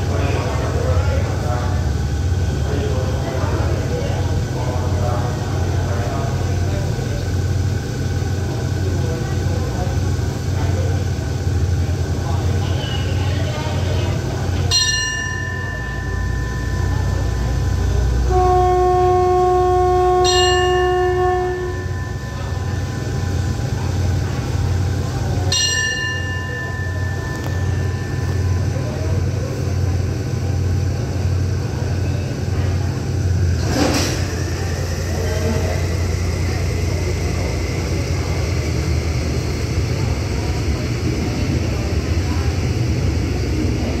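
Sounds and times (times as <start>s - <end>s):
locomotive idling: 0.0s - 44.0s
hand bell ringing: 14.7s - 17.6s
locomotive horn: 18.1s - 22.8s.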